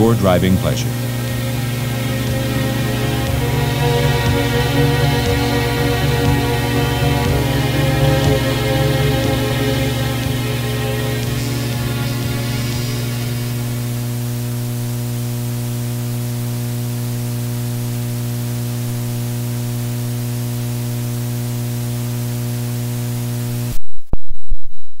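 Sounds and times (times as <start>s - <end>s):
music: 0.0s - 14.5s
electrical hum: 0.0s - 23.8s
tape hiss: 0.0s - 23.8s.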